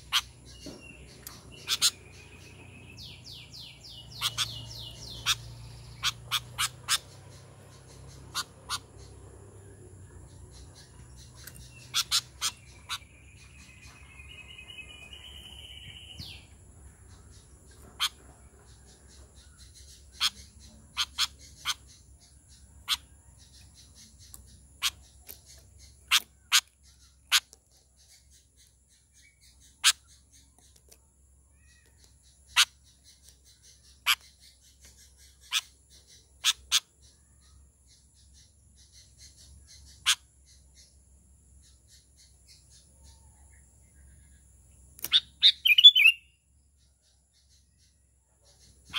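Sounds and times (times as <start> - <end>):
warbling bird call: 1.3 - 9.2, 11.4 - 13.2, 45.1 - 46.3.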